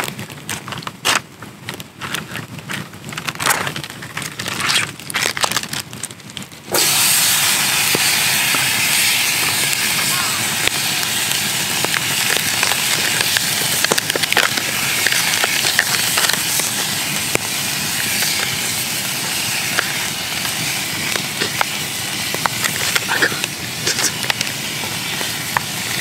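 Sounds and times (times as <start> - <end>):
campfire crackling and popping: 0.0 - 26.0
meat sizzling in a pan: 6.7 - 26.0.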